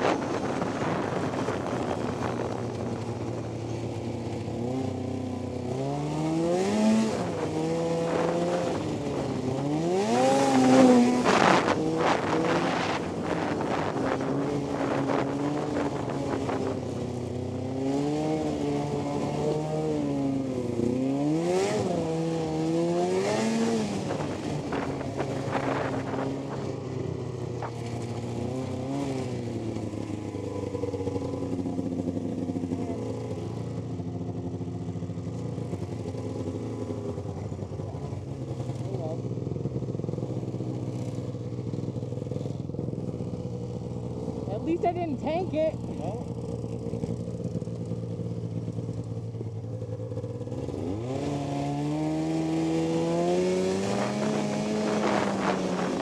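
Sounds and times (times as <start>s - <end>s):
wind rushing over microphone: 0.0s - 3.4s, 53.4s - 56.0s
snowmobile engine revving: 4.6s - 26.8s, 27.6s - 35.0s, 49.8s - 56.0s.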